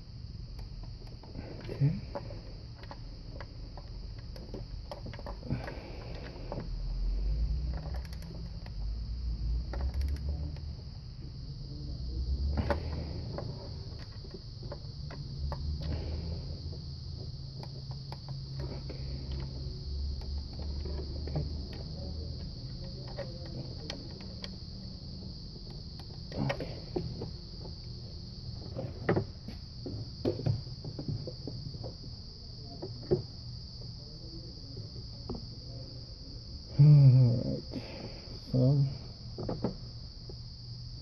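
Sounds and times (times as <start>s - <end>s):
steady high-pitched whine: 0.0s - 41.0s.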